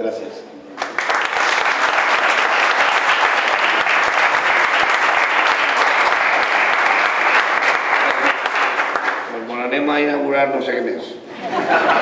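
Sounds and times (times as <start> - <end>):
crowd applauding: 0.8 - 9.3.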